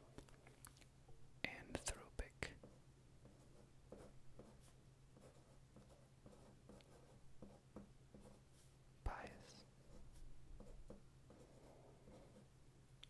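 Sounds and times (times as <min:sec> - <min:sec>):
marker scratching on paper: 0:02.6 - 0:12.5.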